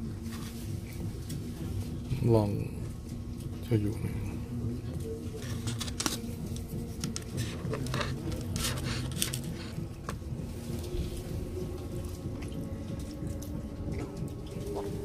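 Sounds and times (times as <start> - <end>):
train carriage rumble and hum: 0.0 - 15.0
food packaging rustling: 5.4 - 10.8.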